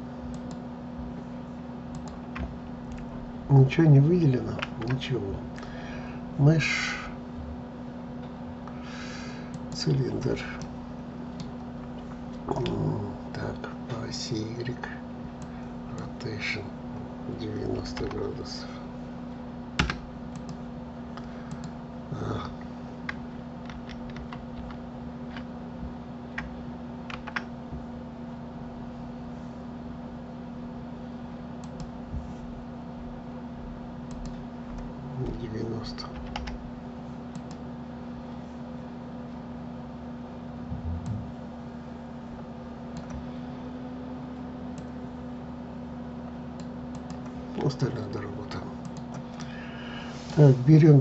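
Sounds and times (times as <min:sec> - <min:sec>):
low electrical hum: 0:00.0 - 0:51.0
computer clicks: 0:01.9 - 0:03.1, 0:19.8 - 0:20.6, 0:21.5 - 0:21.8
keyboard and mouse clicks: 0:23.1 - 0:25.5, 0:27.1 - 0:27.5
low hum: 0:36.6 - 0:51.0.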